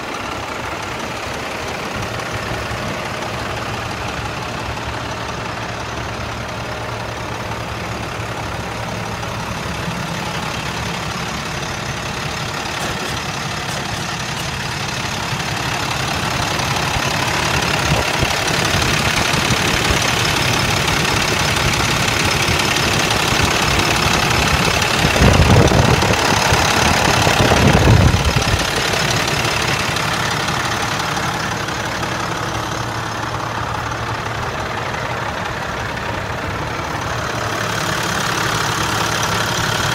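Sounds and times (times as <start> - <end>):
diesel engine idling: 0.0 - 39.9.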